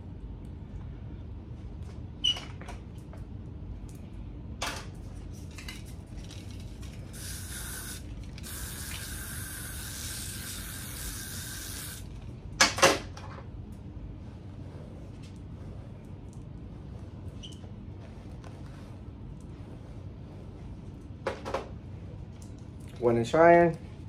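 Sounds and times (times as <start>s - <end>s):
aerosol spray hissing: 7.1s - 12.1s.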